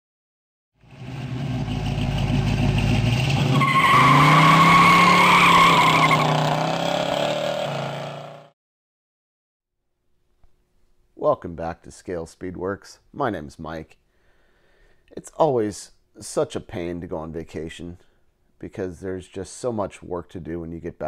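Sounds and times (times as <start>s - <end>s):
car engine revving: 0.8s - 8.5s.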